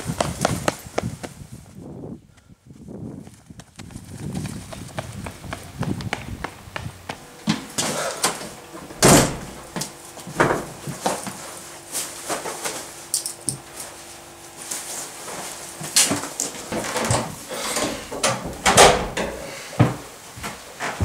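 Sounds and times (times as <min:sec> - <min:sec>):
door opening and shutting: 0:07.3 - 0:09.8, 0:16.1 - 0:20.0.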